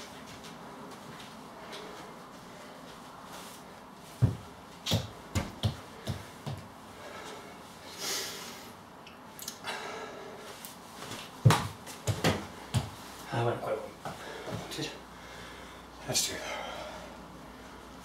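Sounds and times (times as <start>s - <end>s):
rubber ball bouncing on floor: 11.4s - 13.0s.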